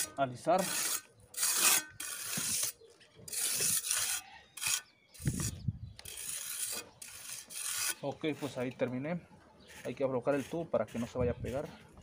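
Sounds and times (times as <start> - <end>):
trowel scraping wet mortar: 0.0 - 9.0, 9.6 - 12.0.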